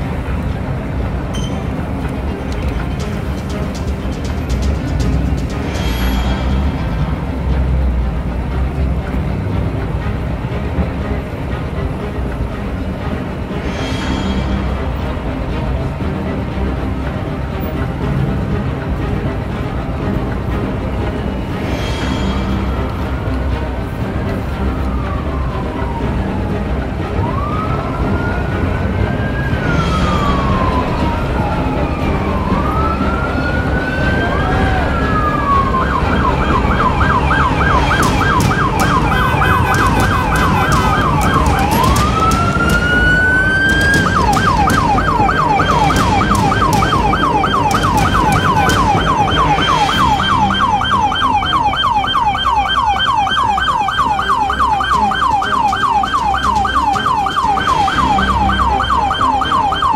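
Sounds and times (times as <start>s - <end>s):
low traffic rumble: 0.0s - 59.9s
siren wailing and yelping: 29.4s - 59.9s.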